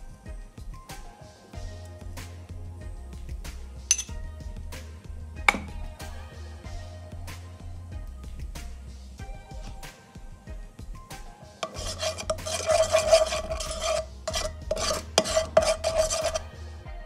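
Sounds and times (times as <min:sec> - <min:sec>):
spatula scraping a frying pan: 0:09.5 - 0:09.8, 0:11.6 - 0:16.5.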